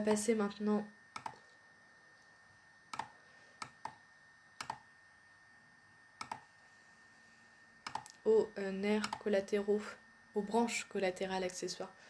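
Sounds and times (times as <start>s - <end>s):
faint steady hiss: 0.0s - 12.0s
computer mouse clicking: 1.1s - 1.5s, 2.9s - 4.0s, 4.6s - 4.8s, 6.2s - 6.5s, 7.8s - 8.2s, 9.0s - 9.3s.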